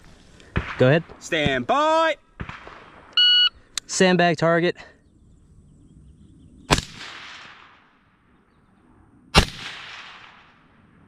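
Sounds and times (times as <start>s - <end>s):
rifle shots with echo: 0.5s - 1.7s, 2.3s - 3.2s, 6.7s - 8.3s, 9.4s - 11.0s.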